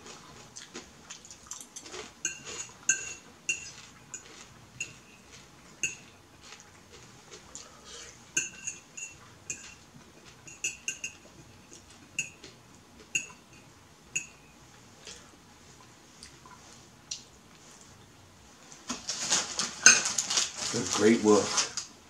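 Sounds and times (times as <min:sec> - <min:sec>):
fork clinking on a plate: 0:01.6 - 0:05.2, 0:05.8 - 0:06.1, 0:08.4 - 0:09.8, 0:10.5 - 0:11.2.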